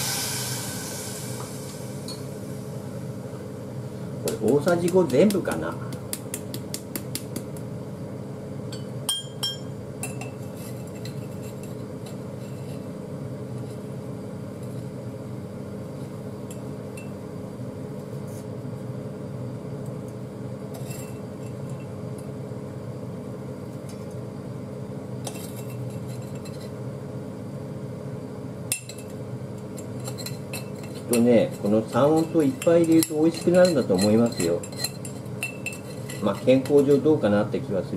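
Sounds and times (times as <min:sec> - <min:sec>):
steady hum: 0:00.0 - 0:37.9
metal spoon clinking on glass jar: 0:30.0 - 0:37.0.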